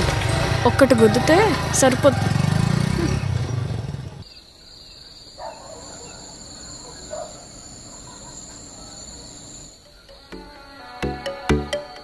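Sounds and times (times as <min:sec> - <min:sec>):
motorcycle pulling away: 0:00.0 - 0:04.3
crickets trilling: 0:04.2 - 0:11.0.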